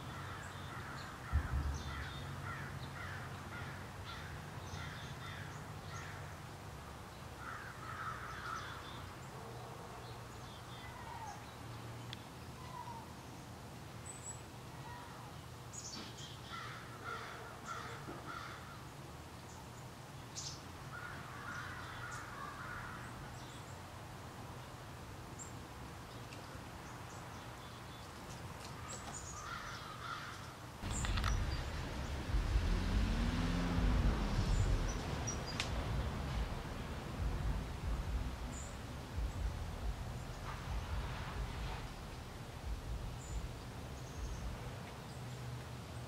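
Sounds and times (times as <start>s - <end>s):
crows cawing: 0.0s - 6.4s, 7.4s - 9.0s, 16.5s - 18.8s, 20.9s - 23.2s, 29.4s - 32.5s
woodland ambience: 0.0s - 46.0s
steady low rumble: 1.2s - 4.6s, 30.8s - 45.0s.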